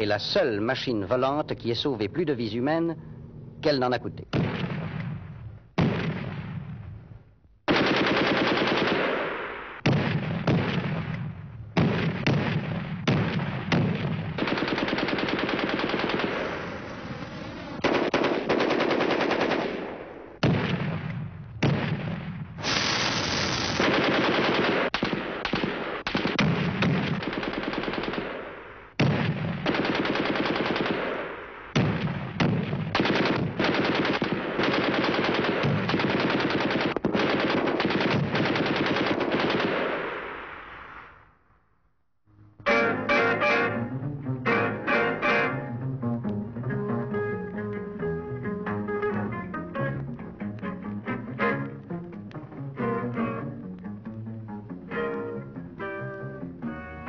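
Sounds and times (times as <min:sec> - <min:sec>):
machine-gun fire: 0:04.3 - 0:06.7, 0:07.7 - 0:40.6.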